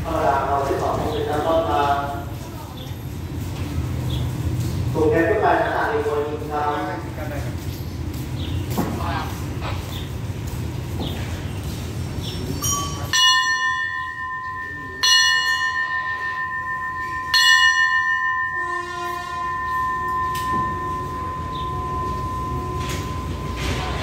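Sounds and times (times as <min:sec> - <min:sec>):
metal bell ringing: 0:12.5 - 0:24.0
steady lower tone: 0:12.6 - 0:24.0.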